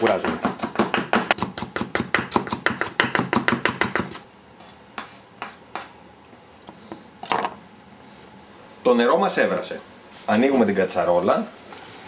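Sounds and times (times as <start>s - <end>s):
knife chopping on wooden board: 0.0s - 4.2s.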